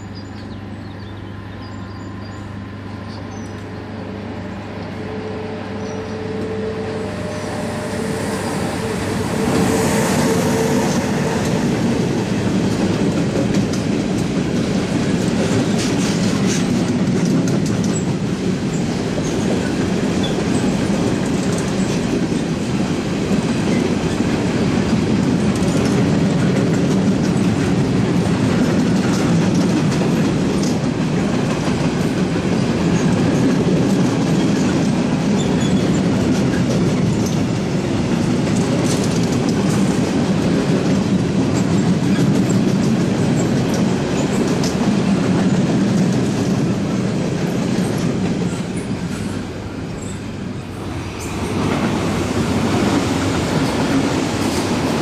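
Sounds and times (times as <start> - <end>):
freight train rumbling past: 0.0 - 55.0
train wheel clicks: 9.5 - 22.7, 23.3 - 50.3.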